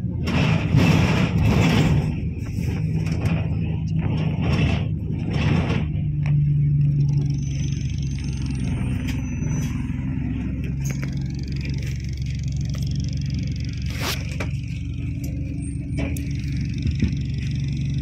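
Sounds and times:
bus engine hum: 0:00.0 - 0:18.0.

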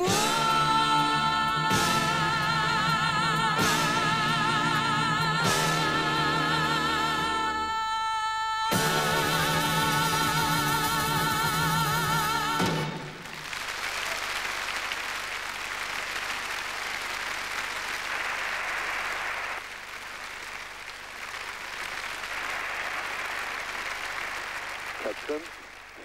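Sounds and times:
audience applauding: 0:12.6 - 0:26.0.

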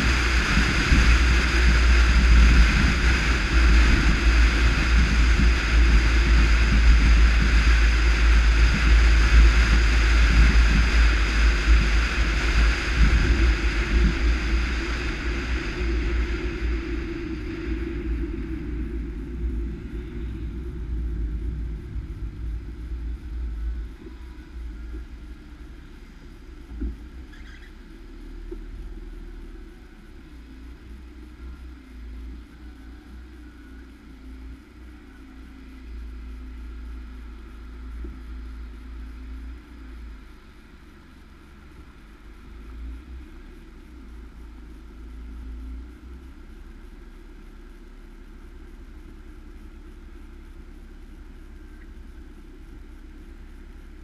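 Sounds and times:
wind rushing over camera: 0:00.0 - 0:29.4
low rumble: 0:00.0 - 0:54.0
tyre hiss on wet road: 0:00.0 - 0:54.0.

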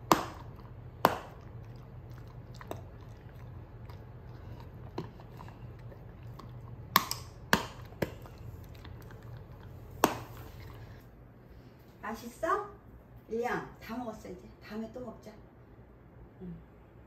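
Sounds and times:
dog crunching a hard treat: 0:00.0 - 0:11.0.

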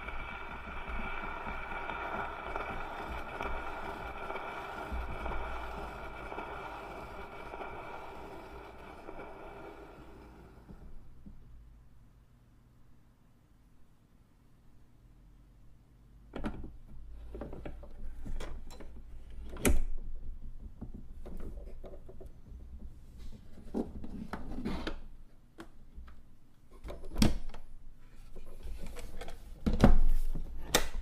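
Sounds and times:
vinyl record crackles and pops: 0:00.0 - 0:11.3.

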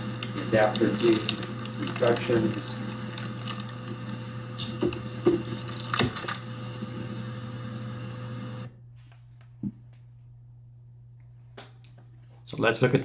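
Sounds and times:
plastic bag crinkling: 0:00.0 - 0:03.9.

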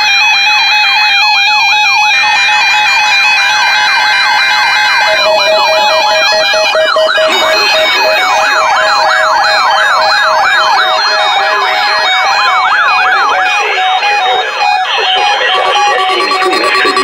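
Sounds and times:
siren-like warbling alarms: 0:00.0 - 0:17.0
on-off beeps: 0:03.6 - 0:17.0.

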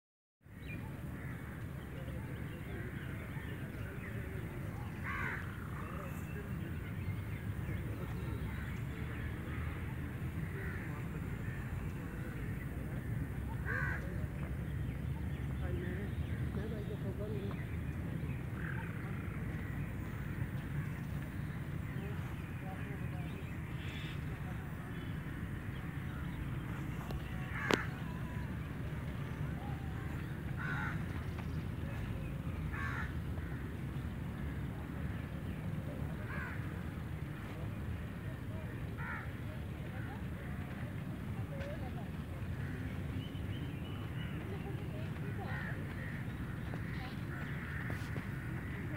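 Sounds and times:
crow cawing: 0:05.0 - 0:05.6, 0:13.6 - 0:14.0, 0:27.5 - 0:28.0, 0:30.6 - 0:31.0, 0:32.7 - 0:33.6, 0:36.3 - 0:36.6, 0:39.0 - 0:39.3.

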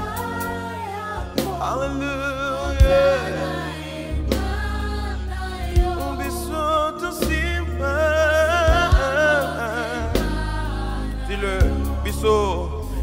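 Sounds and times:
backing singers: 0:00.0 - 0:13.0
electric bass guitar: 0:00.0 - 0:13.0
keyboard: 0:00.0 - 0:13.0
man singing with vibrato: 0:01.2 - 0:03.6, 0:06.1 - 0:10.2, 0:11.3 - 0:13.0.

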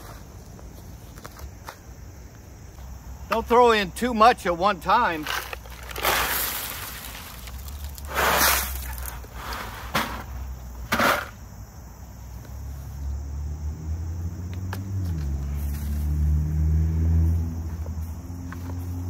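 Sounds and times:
gravel poured onto soil: 0:05.1 - 0:09.9.

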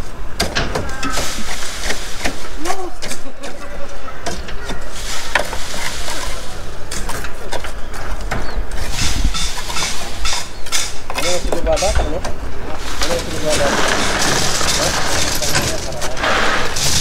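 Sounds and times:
shovel scraping concrete: 0:01.0 - 0:03.6, 0:04.8 - 0:07.7, 0:12.7 - 0:17.0
clatter: 0:13.5 - 0:17.0.

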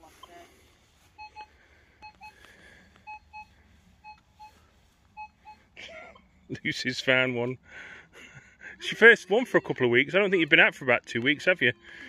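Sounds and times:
metal detector double beeps: 0:05.2 - 0:05.6.

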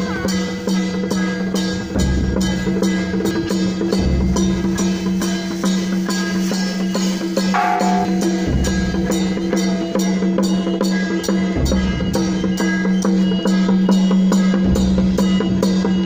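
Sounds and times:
sharp clacking strikes: 0:00.2 - 0:14.7
steady held note: 0:07.5 - 0:10.0
heavy drum hits: 0:07.6 - 0:10.7.

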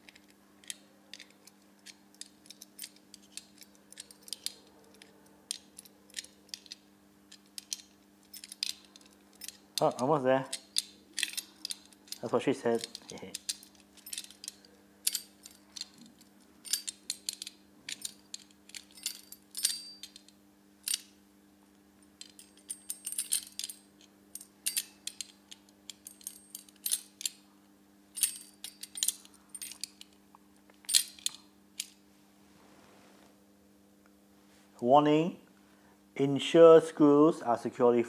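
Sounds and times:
low steady hum: 0:00.0 - 0:38.0
tool clinking against steel: 0:00.7 - 0:20.3.

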